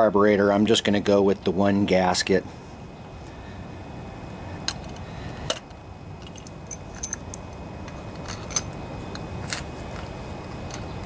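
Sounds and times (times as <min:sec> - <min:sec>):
small metal parts clinking: 0:04.8 - 0:11.0
ringing metallic clinks: 0:06.3 - 0:07.4.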